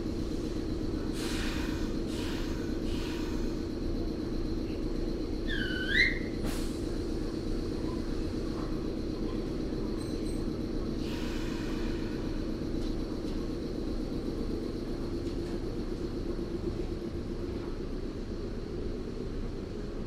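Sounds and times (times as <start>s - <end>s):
train equipment humming: 0.0s - 20.0s.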